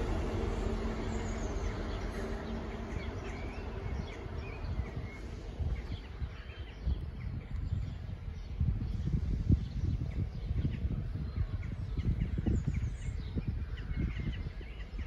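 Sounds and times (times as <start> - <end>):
diesel train engine hum: 0.0 - 6.5
low rumble: 0.0 - 14.6
birds chirping: 0.0 - 15.0.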